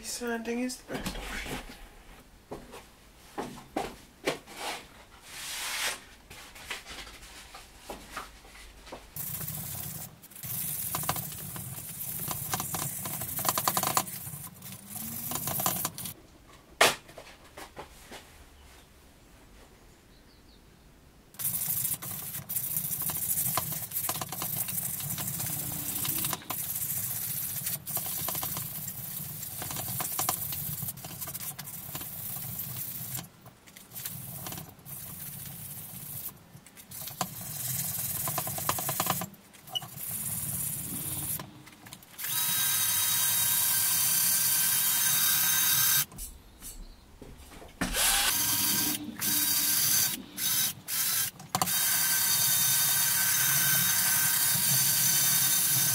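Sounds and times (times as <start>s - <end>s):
drill sanding wheel grinding metal: 9.2s - 16.2s, 21.4s - 30.9s, 42.2s - 46.1s, 47.9s - 55.9s.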